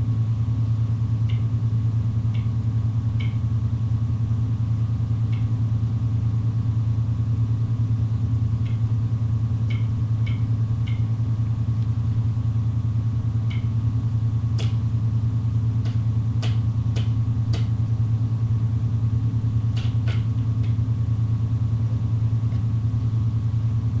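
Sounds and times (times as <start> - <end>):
low fluttering hum: 0.0 - 24.0.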